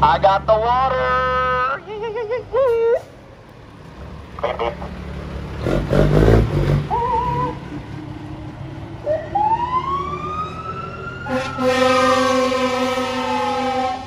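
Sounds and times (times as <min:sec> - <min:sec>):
fire engine siren winding: 0:09.1 - 0:14.0
steady horn blast: 0:11.2 - 0:14.0.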